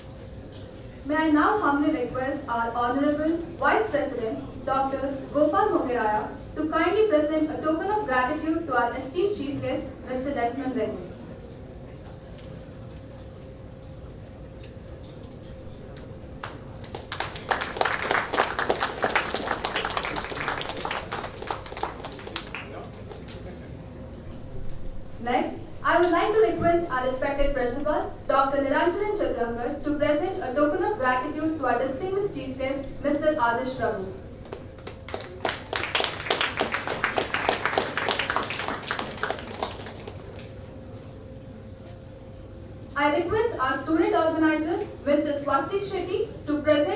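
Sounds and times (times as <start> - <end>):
audience applauding: 16.4 - 23.5, 34.5 - 40.5.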